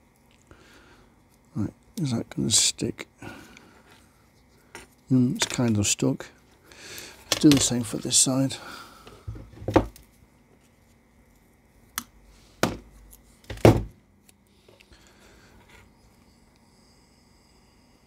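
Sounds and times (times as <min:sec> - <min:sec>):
faint tape rustle: 0:09.0 - 0:12.0
sharp knocks on workbench: 0:12.6 - 0:12.8.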